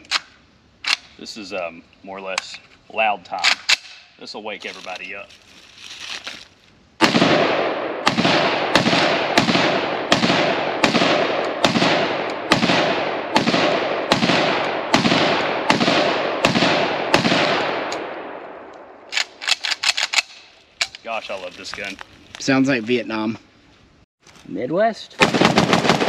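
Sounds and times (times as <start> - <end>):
gunshots with echo: 7.0 - 18.4.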